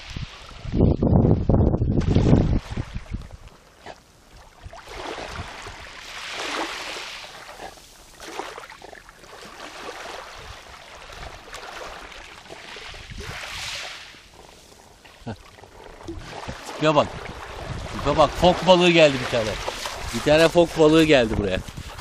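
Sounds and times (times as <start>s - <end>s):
waves washing on pebbles: 4.7s - 8.8s, 9.4s - 22.0s.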